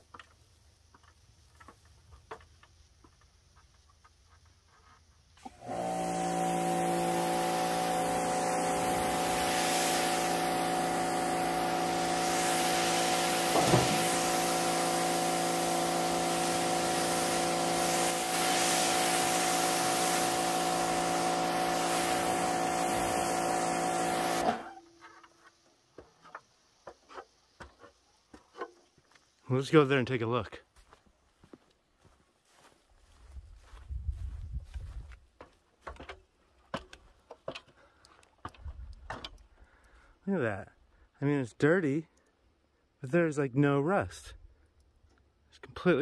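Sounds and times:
high-pressure spray hissing: 0:05.4 - 0:24.7
pressure washer motor hum: 0:05.4 - 0:24.8.

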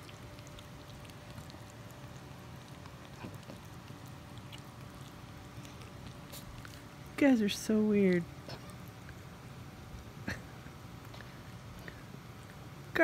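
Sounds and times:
puppies licking clicks: 0:00.0 - 0:09.3
faint steady hum: 0:00.0 - 0:13.0.

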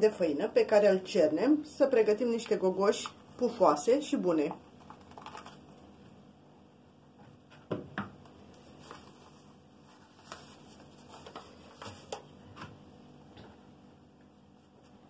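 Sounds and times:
paper bag rustling: 0:04.7 - 0:05.9, 0:08.5 - 0:12.6.

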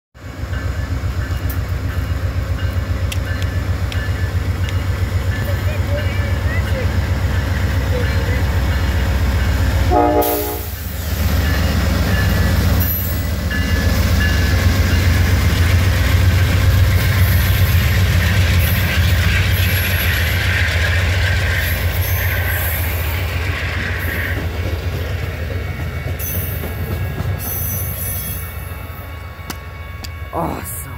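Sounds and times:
diesel locomotive engine rumble: 0:00.2 - 0:30.9
train wheels on rails: 0:00.2 - 0:30.9
train horn blast: 0:09.9 - 0:10.8.

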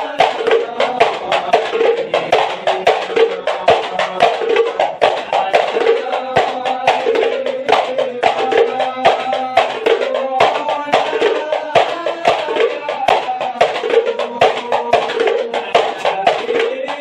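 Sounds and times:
frame drums beating fast: 0:00.0 - 0:17.0
hand claps: 0:00.0 - 0:17.0
men chanting in unison: 0:00.0 - 0:17.0.

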